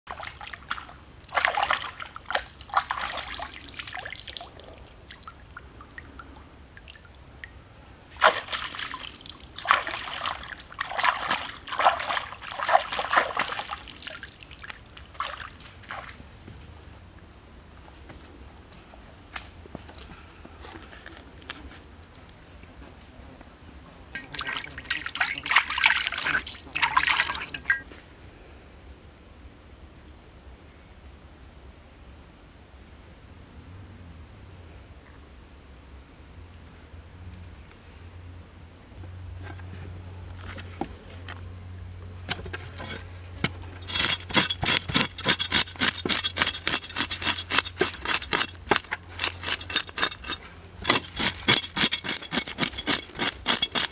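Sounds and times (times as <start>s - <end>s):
water splashing and sloshing: 0.1s - 7.2s, 8.2s - 16.2s, 24.2s - 27.8s
high-pitched insect drone: 0.1s - 17.1s, 23.9s - 32.8s, 39.0s - 53.9s.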